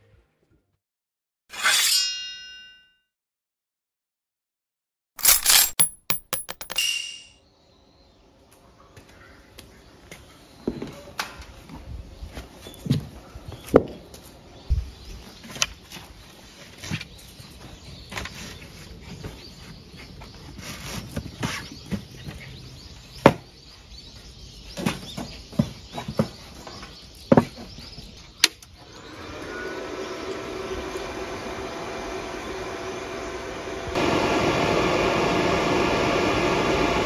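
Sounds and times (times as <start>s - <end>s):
welder fan humming: 28.7s - 37.0s.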